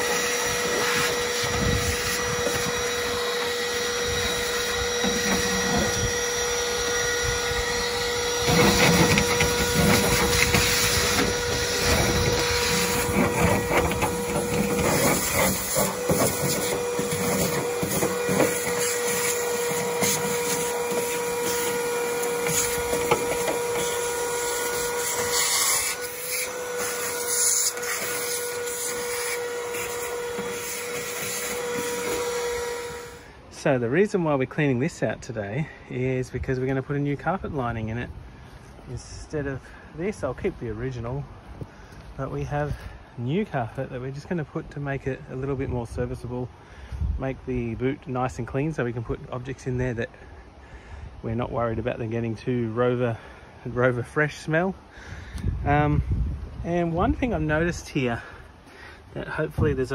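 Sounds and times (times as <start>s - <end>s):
vacuum cleaner motor whine: 0.0s - 33.4s
nozzle scraping on metal: 0.0s - 38.0s.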